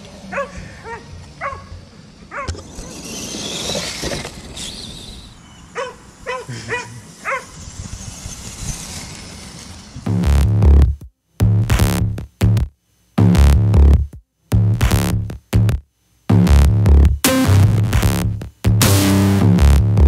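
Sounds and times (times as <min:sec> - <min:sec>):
dog barking: 0:00.3 - 0:02.6, 0:05.8 - 0:07.5
electric motor whine: 0:07.1 - 0:10.2
loud electronic music: 0:10.1 - 0:20.0.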